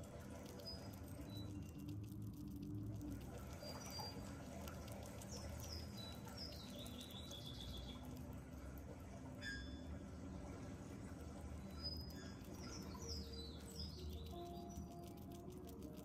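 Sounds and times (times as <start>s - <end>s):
small animal nibbling and crunching: 0.0s - 8.9s, 12.0s - 16.0s.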